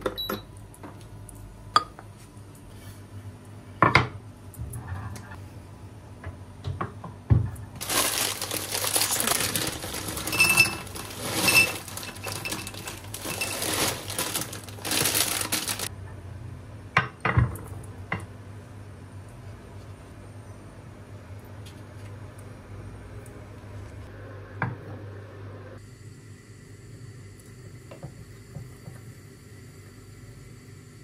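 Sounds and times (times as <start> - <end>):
plastic bag crinkling: 7.8 - 15.9.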